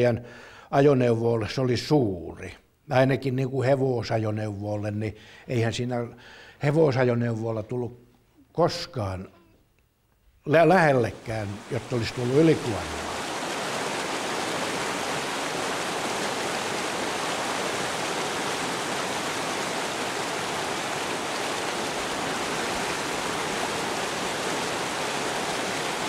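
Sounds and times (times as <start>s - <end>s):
river water rushing: 10.7s - 26.0s.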